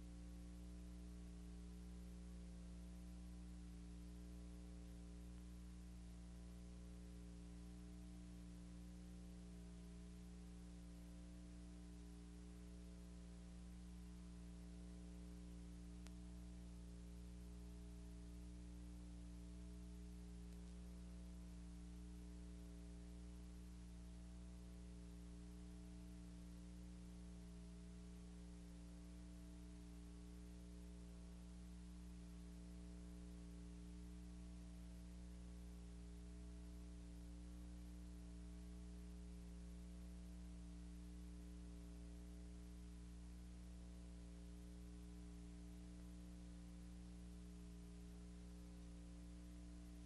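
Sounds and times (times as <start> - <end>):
faint low hum: 0.0 - 50.0
light hiss: 13.4 - 24.4.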